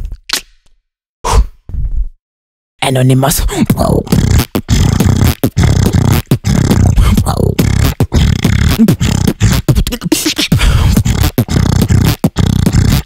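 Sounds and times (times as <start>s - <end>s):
sliding vocal tones: 2.9s - 13.0s
beatboxing drum hits: 3.6s - 13.0s.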